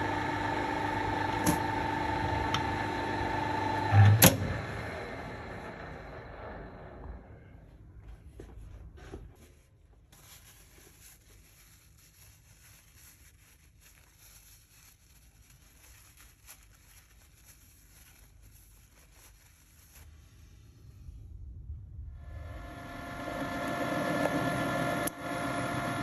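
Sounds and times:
low hum: 0:00.0 - 0:08.5, 0:20.2 - 0:26.0.

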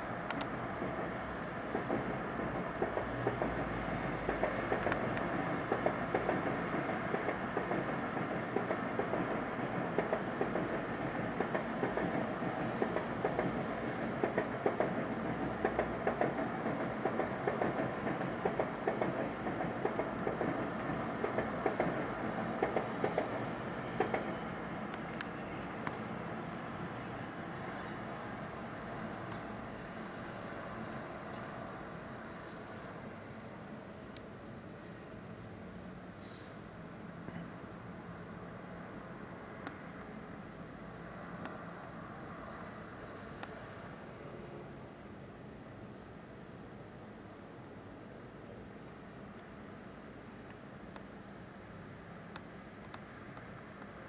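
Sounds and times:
train rumbling: 0:00.0 - 0:54.0
wheels clicking over rail joints: 0:00.2 - 0:26.1.

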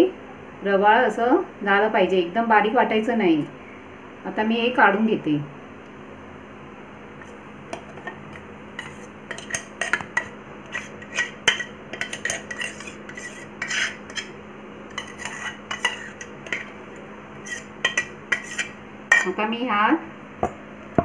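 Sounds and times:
metal spoon scraping steel bowl: 0:08.8 - 0:16.8, 0:17.4 - 0:19.4.

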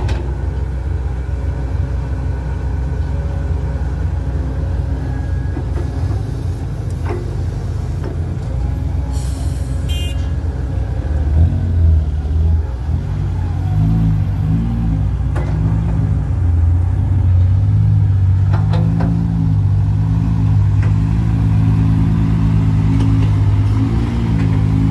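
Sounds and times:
diesel truck engine revving: 0:00.0 - 0:24.9
short hiss: 0:09.1 - 0:10.3.

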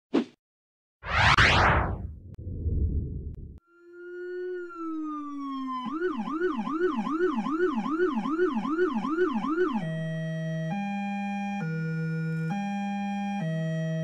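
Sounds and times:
siren yelping: 0:04.0 - 0:10.2.

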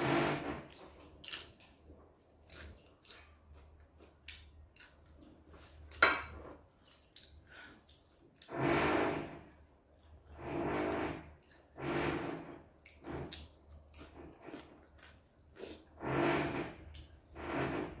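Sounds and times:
chewing smacks: 0:06.8 - 0:08.5.

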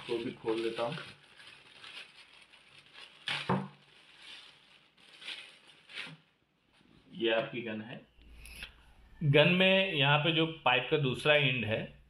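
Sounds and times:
plastic bag crinkling: 0:00.0 - 0:06.9.

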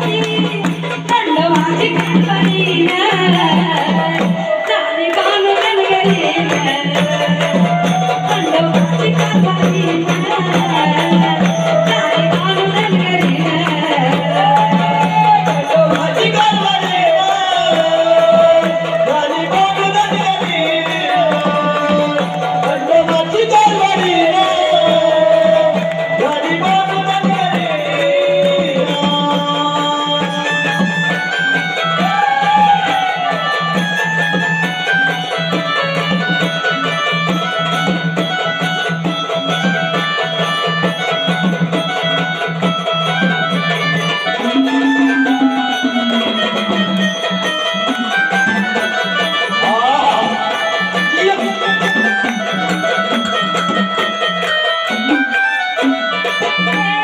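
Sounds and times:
person singing: 0:00.0 - 0:31.2, 0:44.2 - 0:47.0, 0:49.4 - 0:53.4
hand drum and rattle percussion: 0:00.0 - 0:57.0.

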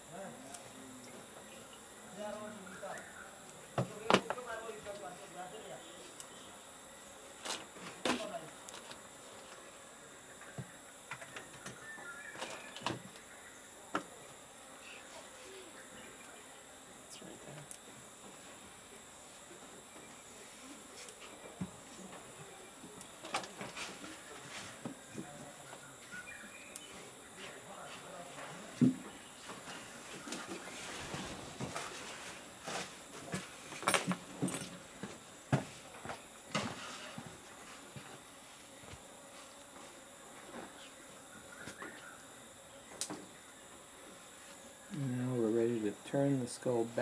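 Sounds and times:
high-pitched insect chorus: 0:00.0 - 0:37.6, 0:38.5 - 0:47.0.

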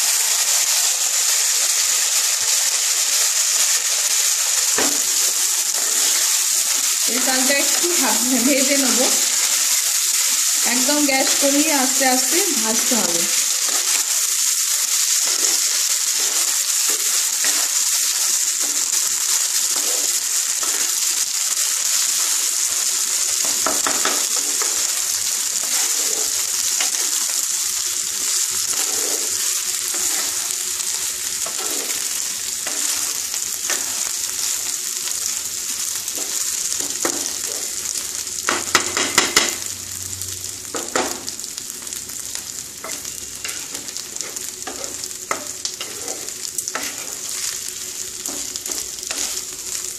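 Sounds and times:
rice sizzling in oil: 0:00.0 - 0:49.9
wooden spatula scraping pan: 0:28.6 - 0:30.5, 0:31.4 - 0:33.1, 0:43.0 - 0:47.6, 0:48.2 - 0:49.5.

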